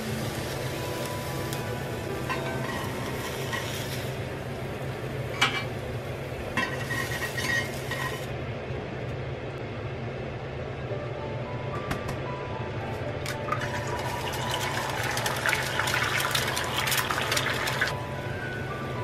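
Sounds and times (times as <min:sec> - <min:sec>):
fruit sizzling in oil: 0:00.0 - 0:08.4, 0:13.4 - 0:18.0.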